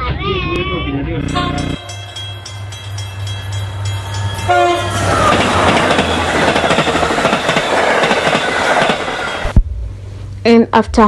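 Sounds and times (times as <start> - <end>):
carriages rattling: 1.2 - 9.5
train horn: 1.3 - 2.2, 4.3 - 6.4
train wheels clattering over rails: 2.0 - 9.6.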